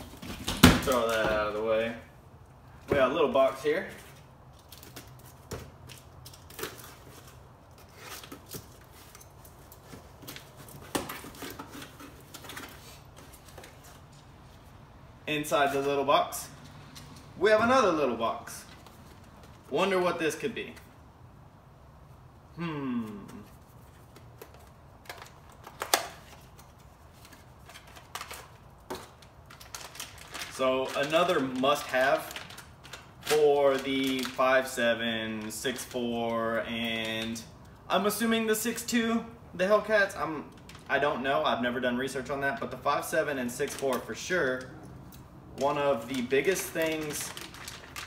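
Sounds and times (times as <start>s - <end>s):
cardboard box crinkling: 27.2s - 34.4s, 46.0s - 48.0s.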